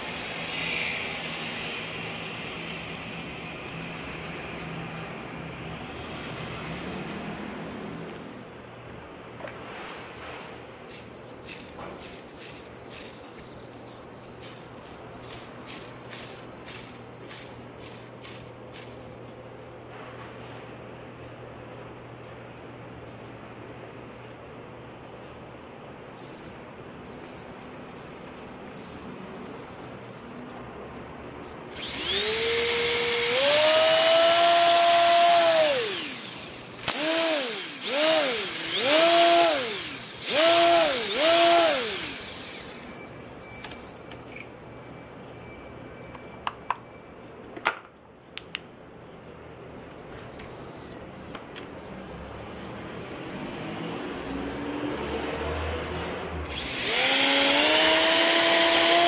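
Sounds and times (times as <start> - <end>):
electric motor high whine: 31.7 - 43.2, 56.4 - 59.0.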